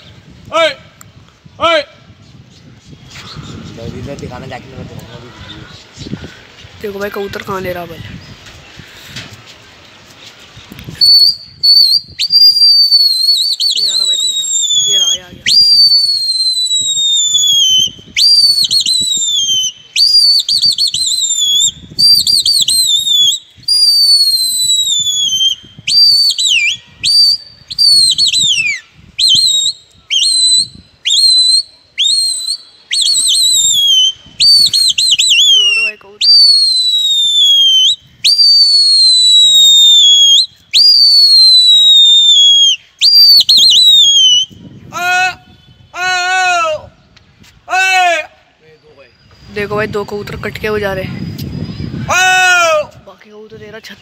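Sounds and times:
shrill human whistling: 10.9 - 44.6.

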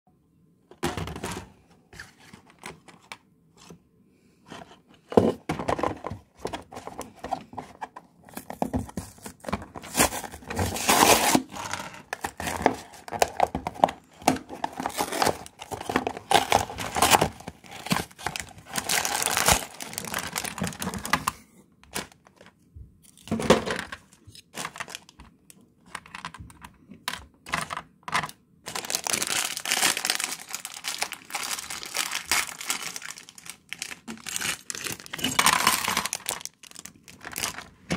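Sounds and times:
cardboard tearing and scraping: 9.8 - 13.4, 14.4 - 21.1
plastic bag crinkling: 9.8 - 22.5, 23.7 - 25.3, 27.5 - 37.9.

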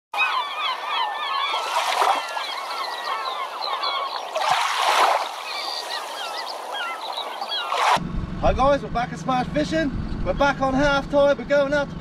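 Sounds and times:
flock of birds calling: 0.2 - 7.9
water rushing and splashing: 1.4 - 8.0.

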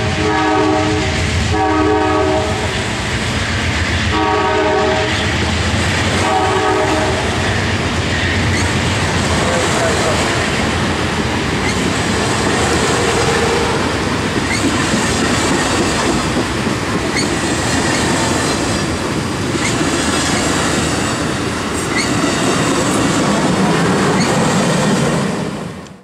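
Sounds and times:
train wheels rushing on rail: 0.0 - 26.0
wheel clack over rail joints: 11.4 - 24.7.

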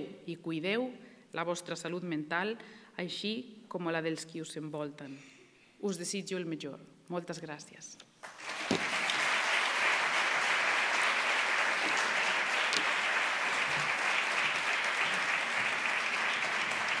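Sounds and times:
audience applauding: 8.2 - 17.0.

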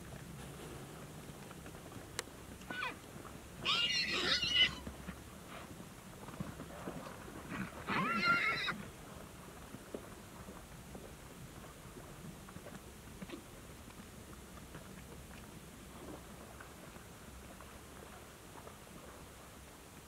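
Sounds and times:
horses squealing: 3.6 - 4.9, 7.8 - 8.8.

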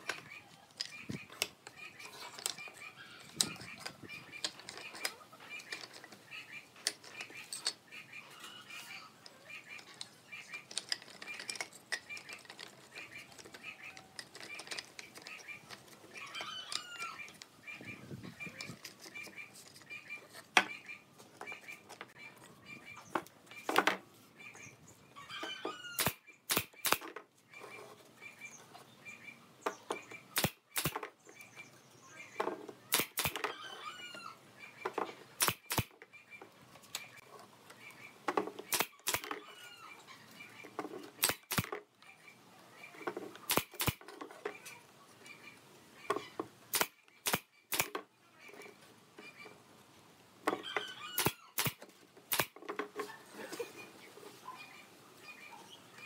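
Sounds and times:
faint birds chirping: 0.0 - 56.0
nail gun firing into wood: 26.0 - 27.1, 30.4 - 31.1, 32.9 - 33.5, 35.4 - 35.9, 38.7 - 39.4, 41.2 - 41.8, 43.5 - 44.0, 46.7 - 48.0, 51.2 - 52.6.

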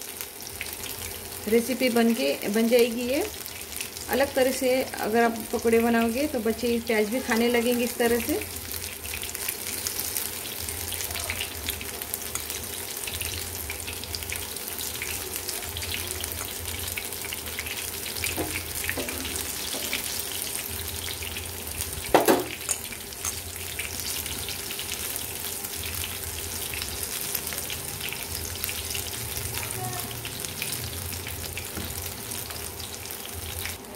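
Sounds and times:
deep-frying sizzle and crackle: 0.0 - 33.9
loud knock: 22.1 - 22.6.

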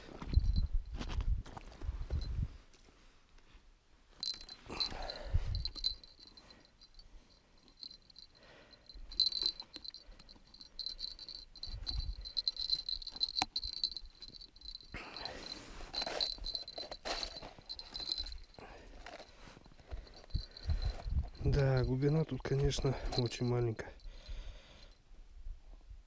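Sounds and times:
small bell jingling: 0.3 - 1.0, 4.2 - 25.0
glove and clothing rustles: 10.6 - 21.8.

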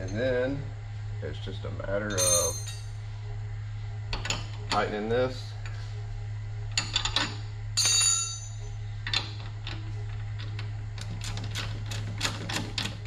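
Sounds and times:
ringing metal clink: 2.1 - 3.0, 7.8 - 8.6.

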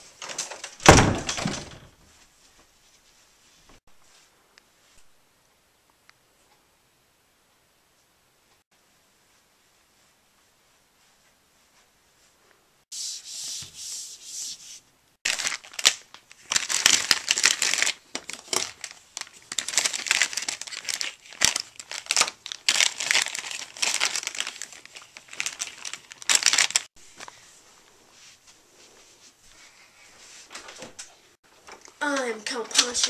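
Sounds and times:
plastic bag crinkling: 15.2 - 26.9.

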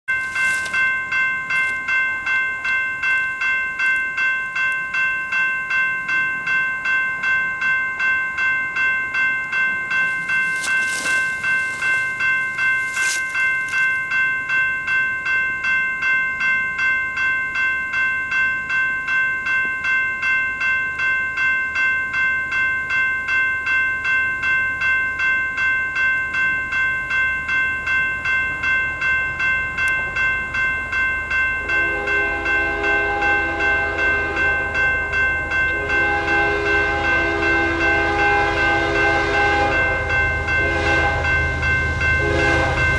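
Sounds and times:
crossing bell ringing: 0.0 - 42.9.

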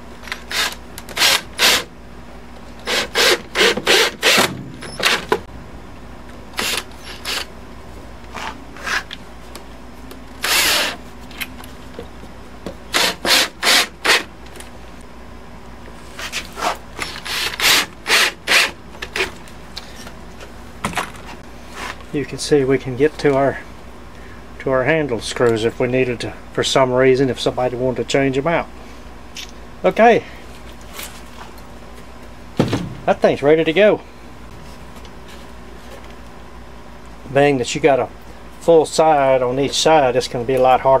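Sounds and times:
cordless drill driving screws into wood: 0.3 - 1.9, 2.8 - 5.4, 10.4 - 11.0, 12.9 - 14.3.

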